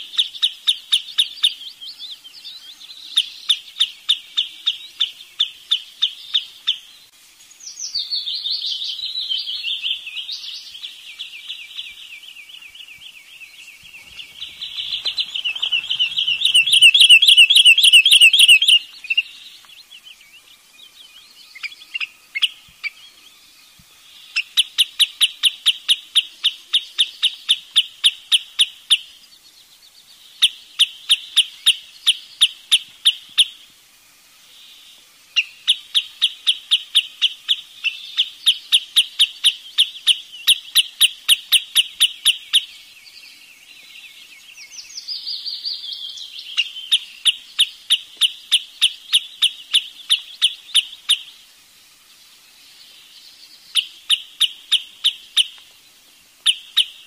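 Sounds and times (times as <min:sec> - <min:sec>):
bird sharp repeated calls: 0:00.0 - 0:07.0, 0:07.7 - 0:20.2, 0:21.3 - 0:23.2, 0:24.0 - 0:29.2, 0:30.4 - 0:33.6, 0:34.6 - 0:42.9, 0:44.6 - 0:51.5, 0:53.6 - 0:55.7, 0:56.4 - 0:57.0
bird falling call: 0:13.6 - 0:19.3.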